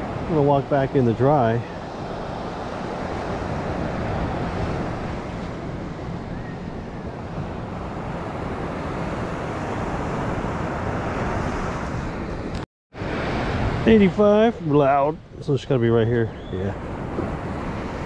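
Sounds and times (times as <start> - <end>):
surf on a beach: 0.0 - 18.0
wind on the microphone: 0.0 - 18.0.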